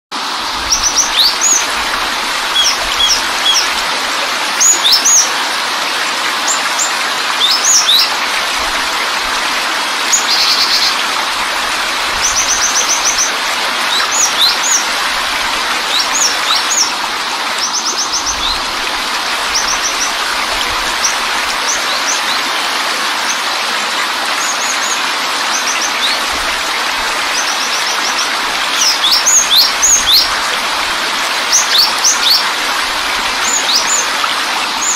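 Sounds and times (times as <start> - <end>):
waterfall rushing: 0.1 - 34.9
small birds chirping: 0.6 - 5.4, 6.5 - 8.8, 12.1 - 17.0, 17.6 - 22.6, 27.0 - 30.4, 31.5 - 34.9.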